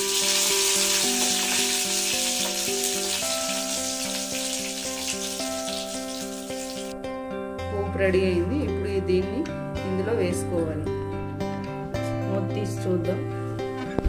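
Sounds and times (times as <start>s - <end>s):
hot oil sizzling in a pan: 0.0s - 6.9s
background music with held notes: 0.0s - 14.0s.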